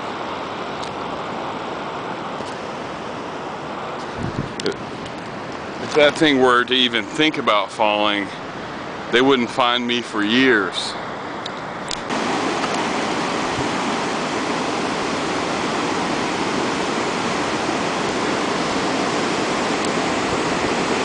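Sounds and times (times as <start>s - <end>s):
surf washing around rocks: 0.0s - 21.0s.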